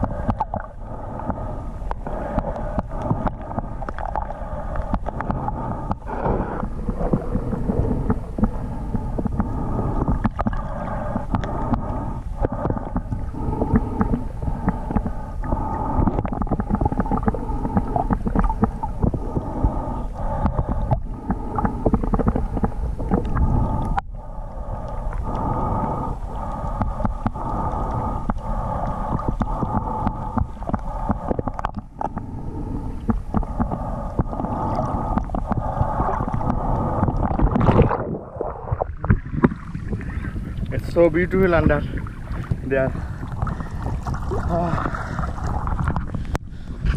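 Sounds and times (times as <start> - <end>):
muffled underwater rumble: 0.0 - 46.9
small clicks and crackles: 0.2 - 6.1, 26.4 - 32.3.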